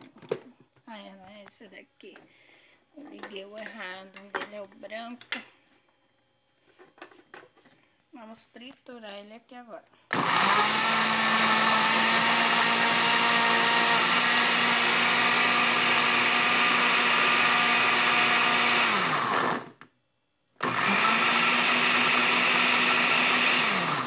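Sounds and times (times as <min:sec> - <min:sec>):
blender running: 0:10.1 - 0:19.8, 0:20.6 - 0:24.0.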